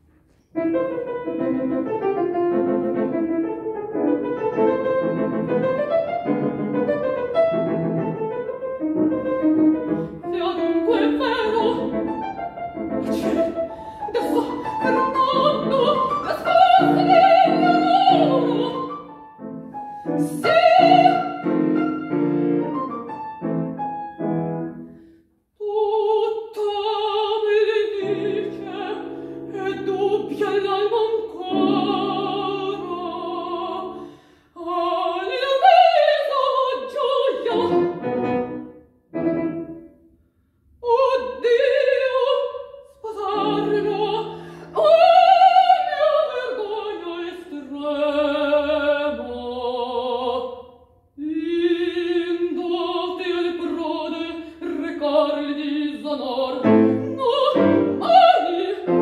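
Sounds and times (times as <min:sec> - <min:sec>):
grand piano: 0:00.0 - 0:59.0
woman singing operatic style: 0:09.8 - 0:19.4, 0:20.0 - 0:22.3, 0:25.6 - 0:38.4, 0:40.8 - 0:59.0.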